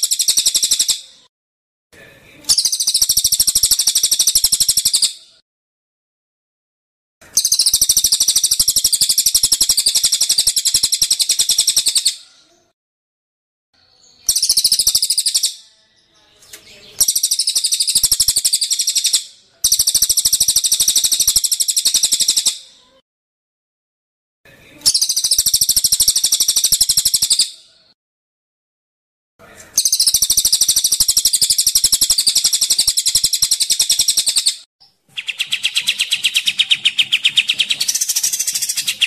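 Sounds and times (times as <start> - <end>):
songbird rattling trills: 35.2 - 39.0.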